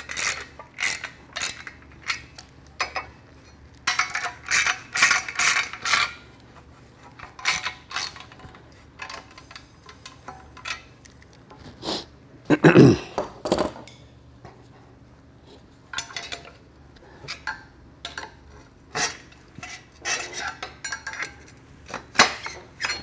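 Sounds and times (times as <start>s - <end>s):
hand ratchet clicking: 0.0s - 2.2s.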